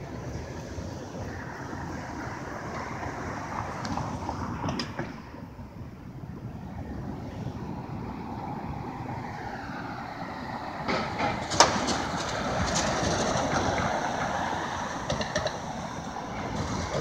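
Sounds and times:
vehicle passing: 6.2s - 17.0s.

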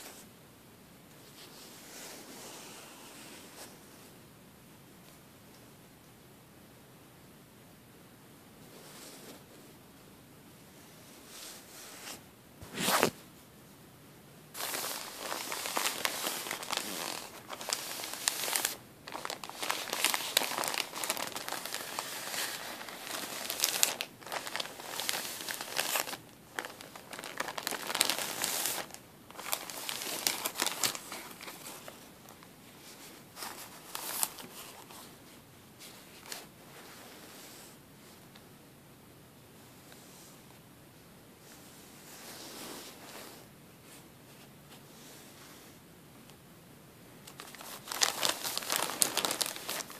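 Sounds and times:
plastic bag crinkling: 14.6s - 32.5s, 47.3s - 49.9s.

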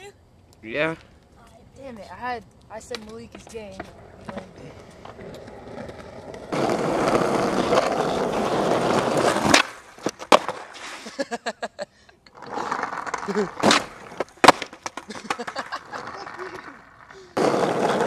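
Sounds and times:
skateboard wheels rolling on asphalt: 0.8s - 11.6s, 12.3s - 18.0s
skateboard clattering on pavement: 2.8s - 11.1s, 12.3s - 18.0s.

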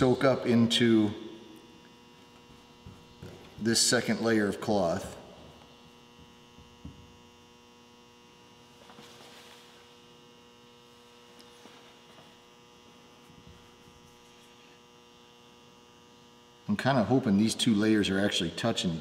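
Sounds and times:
electrical hum: 0.0s - 19.0s.

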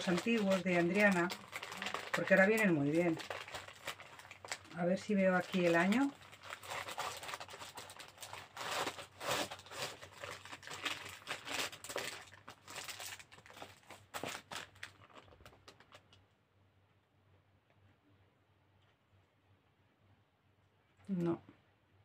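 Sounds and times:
packaging crinkling and rustling: 0.0s - 16.3s.

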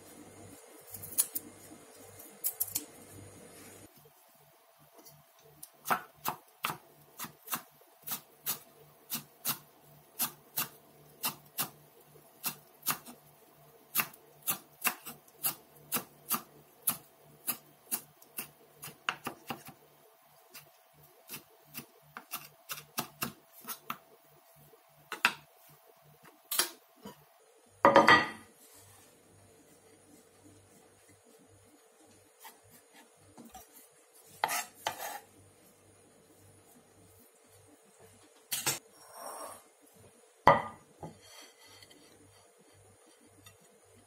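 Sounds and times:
knife scraping board: 34.3s - 35.3s.

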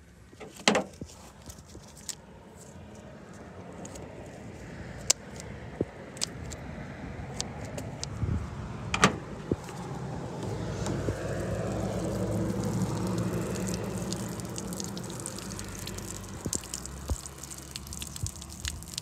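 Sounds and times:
water running from a spigot: 11.1s - 19.0s.

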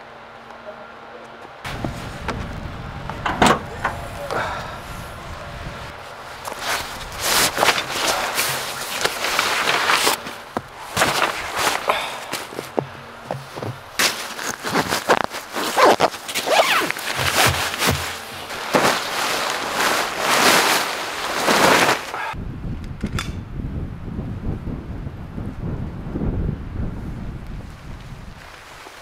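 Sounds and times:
wind rumble on microphone: 1.7s - 8.4s, 22.3s - 29.0s
crunching footsteps in deep snow: 3.7s - 22.4s.

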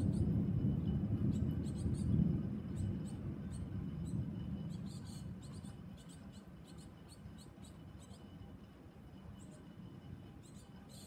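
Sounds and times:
thunder rumbling: 0.0s - 5.5s.

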